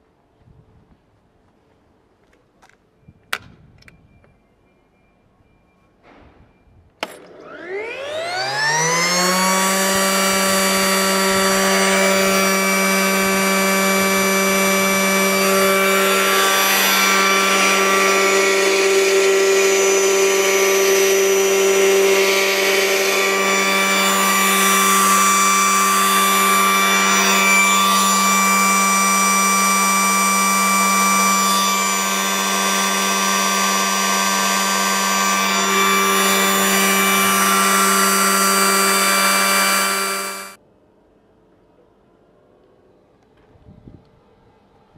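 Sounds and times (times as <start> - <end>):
grinding mill motor whining: 7.2 - 40.6.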